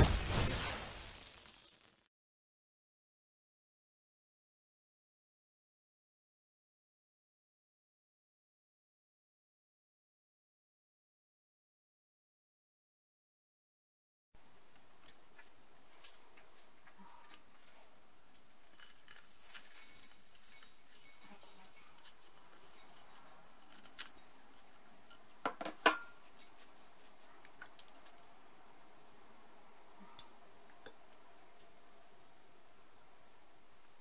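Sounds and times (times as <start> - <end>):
bowls clinking and knocking: 18.8 - 27.9.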